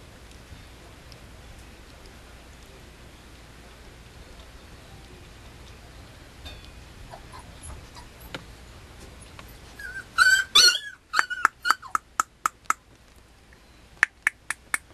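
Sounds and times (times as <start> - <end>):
puppy whimpering yelps: 7.1 - 8.3, 9.8 - 12.0
puppy high squeaks: 9.7 - 12.1.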